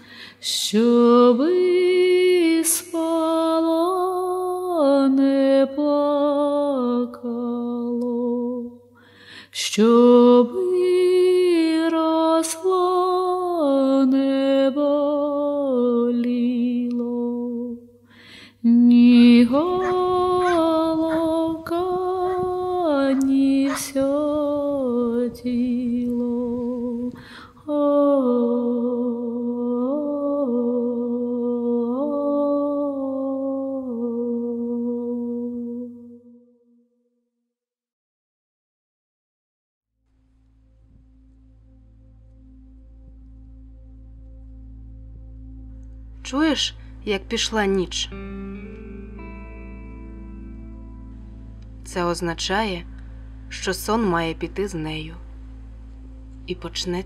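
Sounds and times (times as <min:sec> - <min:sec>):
faint low hum: 0:18.7 - 0:30.2
person singing lullaby: 0:18.7 - 0:35.8.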